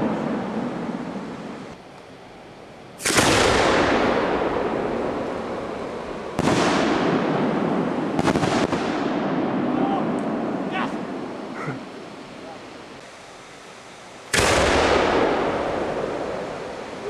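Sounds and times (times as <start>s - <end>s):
sharp cracks: 3.0s - 5.4s, 6.3s - 10.5s, 14.3s - 16.8s
firework booms echoing: 3.0s - 11.3s, 14.3s - 16.8s.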